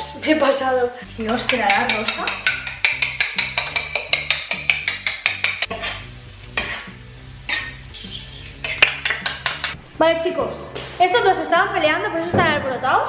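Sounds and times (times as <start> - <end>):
frying pan hiss: 0.0 - 12.3
background music with bass line: 0.0 - 13.0
fork beating eggs in bowl: 0.2 - 8.0.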